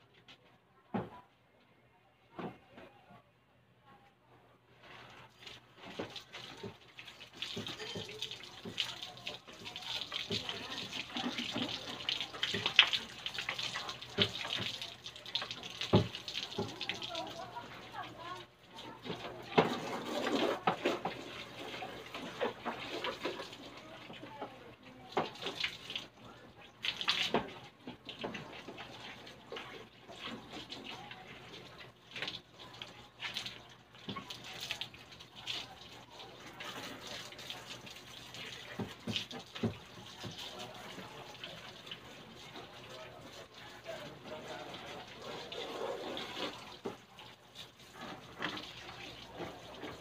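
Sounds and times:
hose water splashing: 4.9 - 50.0.

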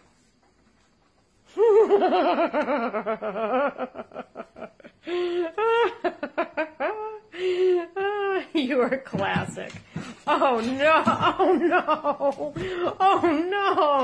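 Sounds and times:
person laughing: 1.6 - 8.4.

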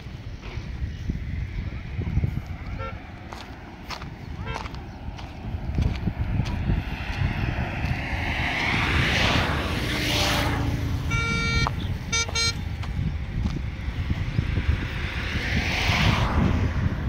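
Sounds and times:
road traffic passing: 0.0 - 17.0
vehicle horn honking: 2.7 - 3.0, 11.0 - 12.7.

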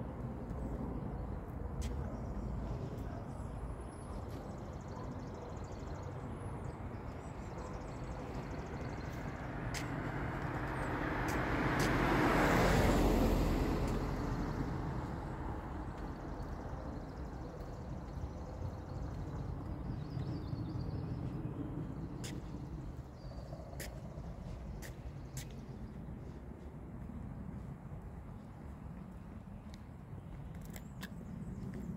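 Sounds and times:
car driving past: 9.7 - 16.0.

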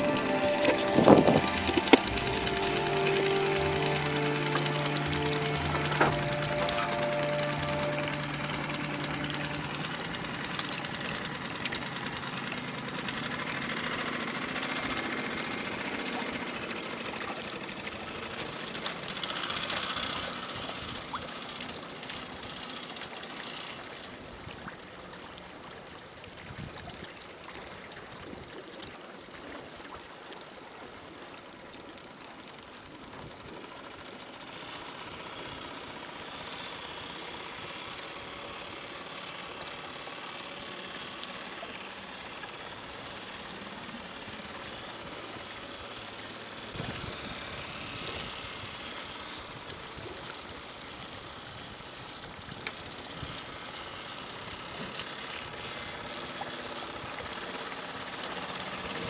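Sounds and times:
outboard motor running: 0.0 - 59.0.

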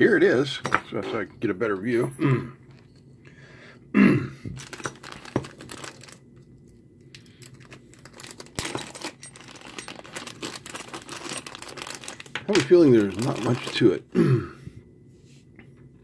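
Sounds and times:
plastic bag crinkling: 4.6 - 6.2, 7.1 - 14.0.

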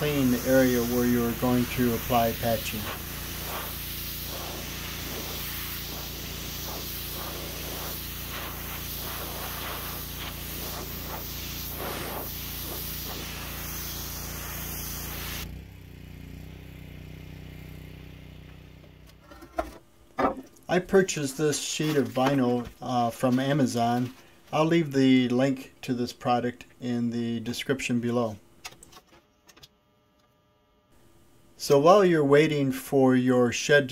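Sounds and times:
pressure washer jet hissing: 0.0 - 15.5
pump humming: 0.0 - 15.6.

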